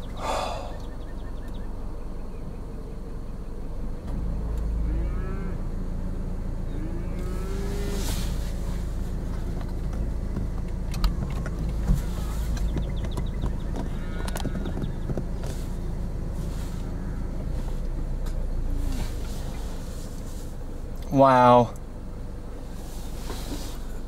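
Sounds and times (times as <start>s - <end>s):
steady low rumble: 0.0s - 24.0s
cattle mooing: 4.6s - 5.8s, 6.7s - 8.4s, 13.8s - 14.8s, 16.7s - 17.4s.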